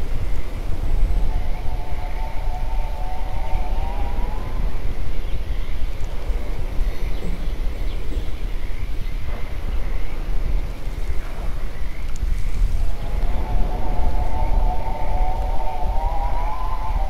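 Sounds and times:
low rumbling wash of noise: 0.0 - 17.0
wavering siren-like wail: 1.1 - 5.0, 12.9 - 17.0.

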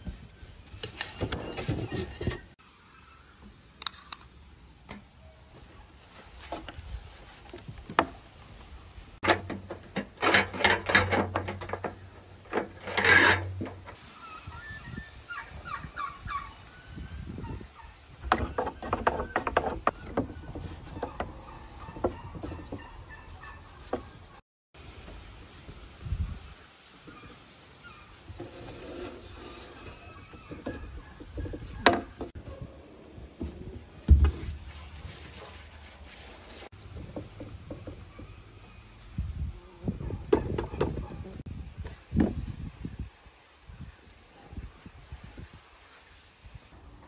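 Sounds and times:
farmyard fowl calling: 14.0 - 16.7, 19.9 - 24.3.

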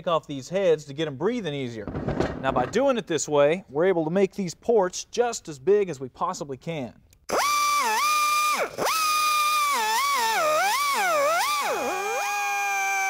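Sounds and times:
die grinder whining on metal: 7.3 - 13.0.

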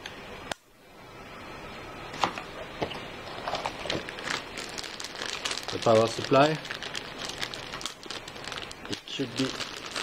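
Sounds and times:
plastic bag crinkling: 3.3 - 10.0.

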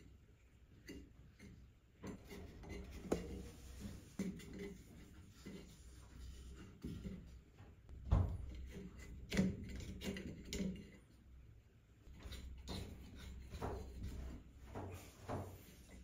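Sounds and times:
swab scraping plastic fan blades: 0.7 - 7.5.

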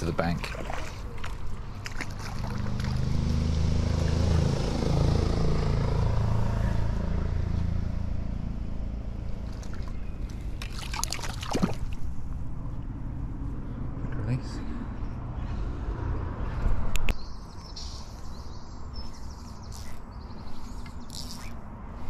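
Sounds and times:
vehicle engine rumbling: 0.0 - 10.8, 11.4 - 22.0
water splash: 0.4 - 3.5, 10.6 - 12.0.

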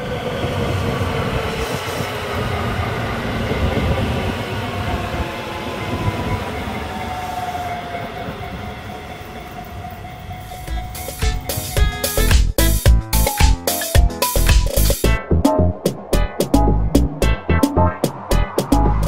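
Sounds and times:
train motor whine: 0.0 - 12.3
train wheels rumbling on rail: 0.0 - 13.3, 14.4 - 19.0.

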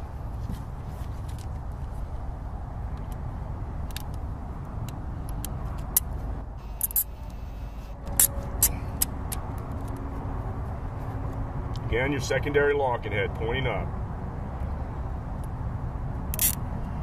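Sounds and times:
steady low rumble: 0.0 - 17.0
sharp plastic clicks: 3.8 - 6.2.

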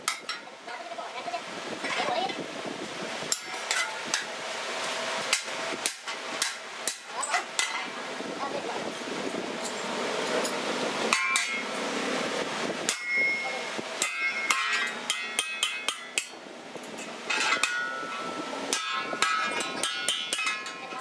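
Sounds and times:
hammer striking metal punch: 11.1 - 11.6, 12.9 - 13.4, 14.0 - 16.4, 17.3 - 20.8.

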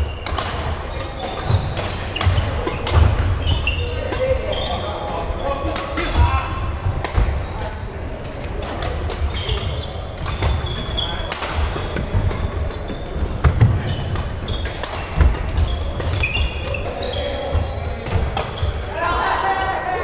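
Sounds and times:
shoes squeaking on court: 0.0 - 6.2, 7.2 - 18.9
racket hitting shuttlecock: 0.2 - 3.5, 8.5 - 18.6.

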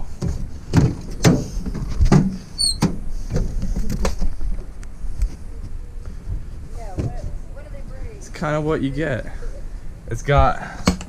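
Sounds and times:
door squeak: 2.6 - 2.9.

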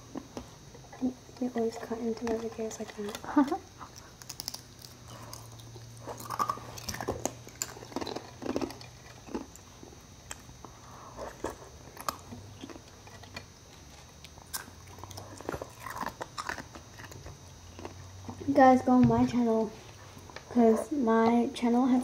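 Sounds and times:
ice being chewed: 1.4 - 18.4.

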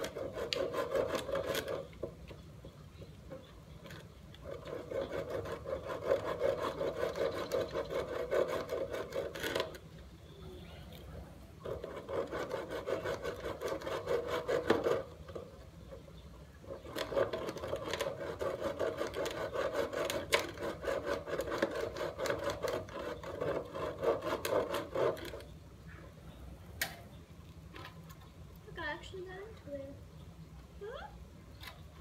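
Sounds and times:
hand saw cutting: 0.0 - 1.9, 4.4 - 9.8, 11.6 - 15.2, 16.7 - 25.5.

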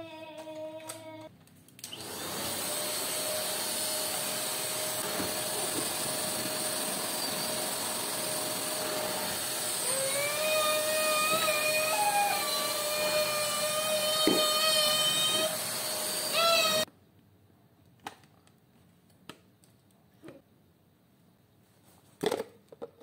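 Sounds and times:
vacuum cleaner motor running: 1.9 - 16.9.

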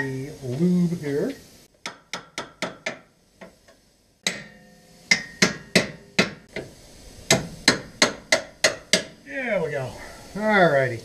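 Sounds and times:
metallic ring: 4.2 - 6.2
hammer striking steel: 4.2 - 6.7, 7.3 - 9.2.

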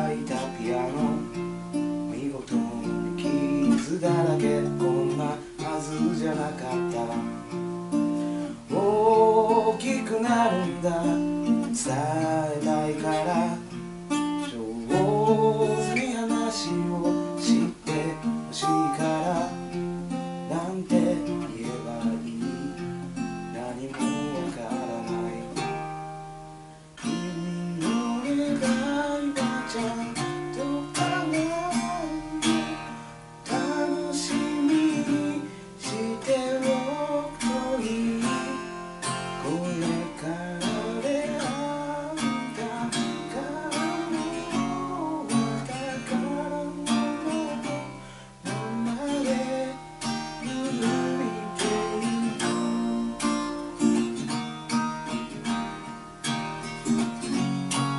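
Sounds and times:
acoustic guitar playing: 0.0 - 57.9.

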